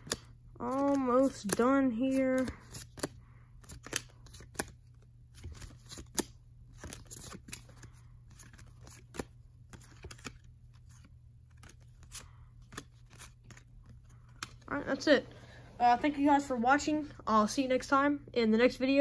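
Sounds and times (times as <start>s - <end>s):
cards flipped by hand: 0.0s - 1.7s, 2.4s - 15.4s.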